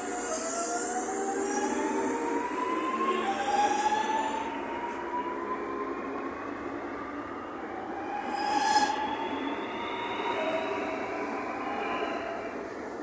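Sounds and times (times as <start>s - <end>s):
train motors whining: 0.0s - 5.4s
wheels rumbling on rail: 0.0s - 13.0s.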